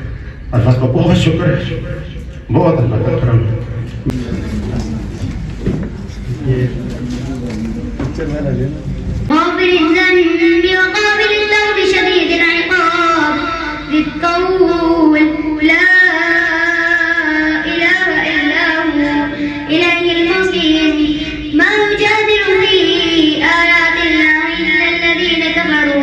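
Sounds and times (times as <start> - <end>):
boy chanting melodically: 9.3 - 26.0.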